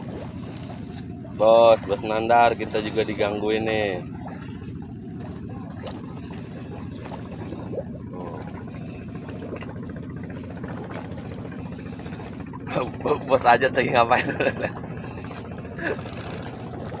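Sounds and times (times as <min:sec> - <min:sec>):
small engine running: 0:14.6 - 0:17.0.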